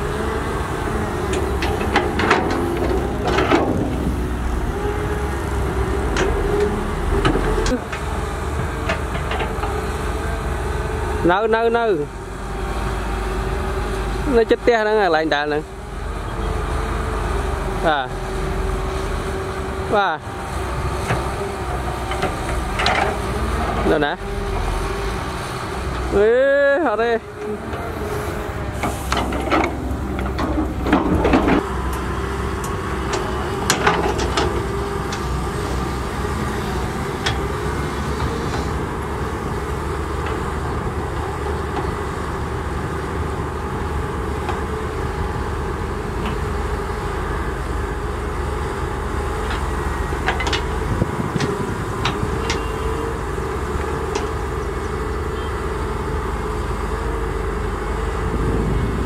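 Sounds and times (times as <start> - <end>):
diesel engines running under load: 0.0 - 59.0
bucket clanking on metal: 1.4 - 4.1.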